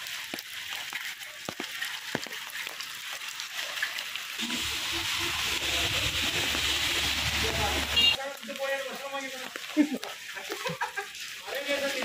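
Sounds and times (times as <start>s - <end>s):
raindrops tapping: 0.0s - 12.0s
steady rain hiss: 4.4s - 12.0s.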